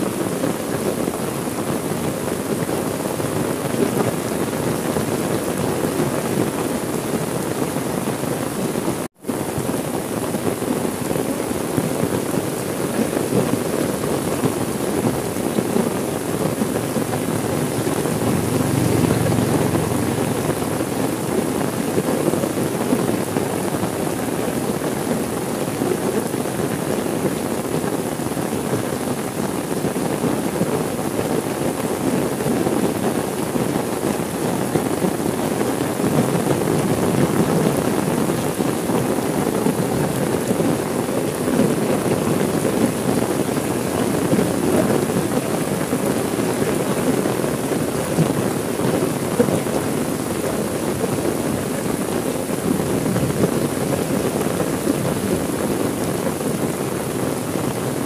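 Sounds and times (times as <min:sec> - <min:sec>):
heavy rain on a window: 0:00.0 - 0:58.0
thunder rumble: 0:16.0 - 0:22.7.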